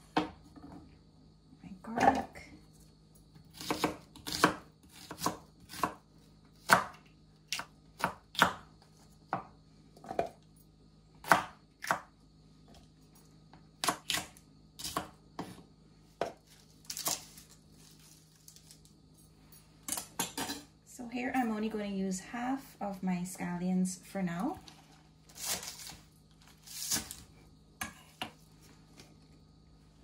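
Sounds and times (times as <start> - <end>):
knife chopping on wooden board: 3.6 - 6.0, 6.6 - 8.6, 11.2 - 12.0.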